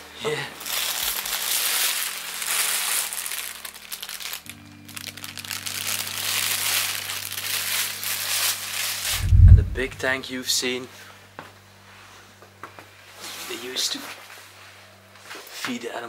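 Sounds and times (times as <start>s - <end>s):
loud crinkling crackling: 0.5s - 9.9s
low sustained music chords: 3.2s - 10.1s.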